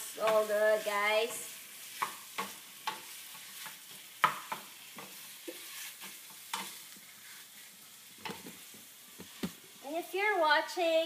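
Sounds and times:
meat sizzling in a pan: 0.0 - 11.0
utensil clicking against pan: 2.0 - 5.6.

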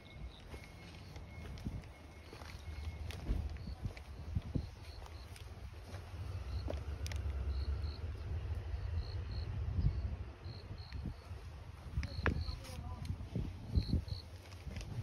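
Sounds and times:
insect chirping: 0.0 - 12.7, 13.6 - 14.5.

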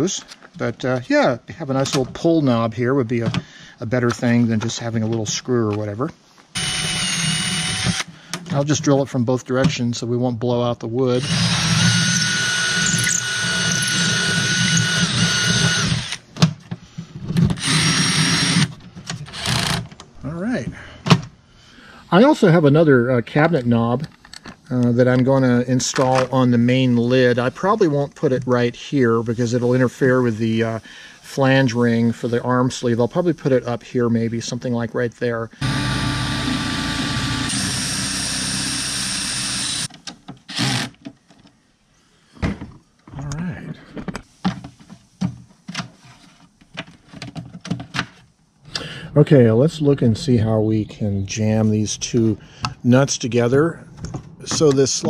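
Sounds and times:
cordless drill boring through wood: 6.6 - 8.1, 11.2 - 16.2, 17.6 - 18.7, 19.3 - 19.8, 35.6 - 39.9, 40.5 - 40.9
drill clicks: 6.6 - 8.1, 11.2 - 16.2, 17.6 - 20.1, 35.6 - 39.9, 40.5 - 41.0.

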